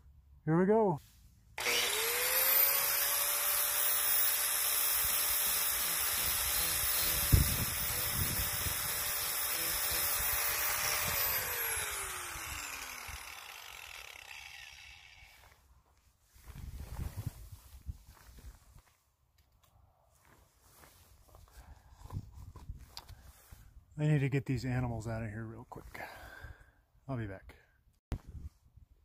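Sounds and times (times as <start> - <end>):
electric grinder whining: 1.6 - 15.6.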